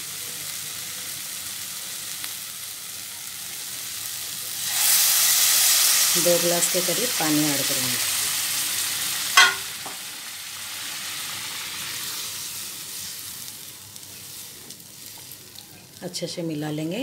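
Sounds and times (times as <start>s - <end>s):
food sizzling and bubbling in a pan: 0.0s - 17.0s
spatula knocking against pan: 9.4s - 10.0s.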